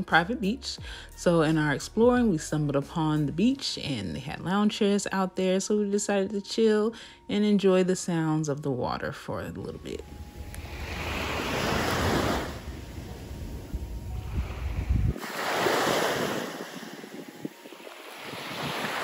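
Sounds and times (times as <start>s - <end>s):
wind rumble on microphone: 10.0s - 19.0s
ocean waves washing on beach: 10.3s - 19.0s.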